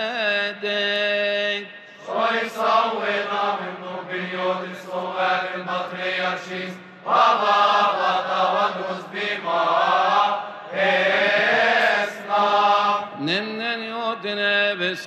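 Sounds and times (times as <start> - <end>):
man chanting a hymn: 0.0 - 2.6, 11.6 - 15.0.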